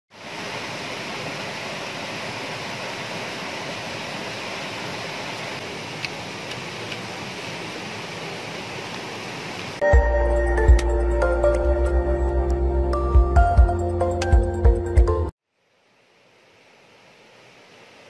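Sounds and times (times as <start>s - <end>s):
water rushing over rocks: 0.1s - 9.8s.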